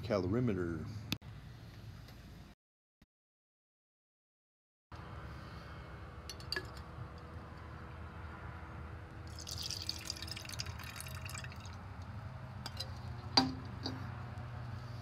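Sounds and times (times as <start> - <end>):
water trickling into metal can: 9.3 - 11.8.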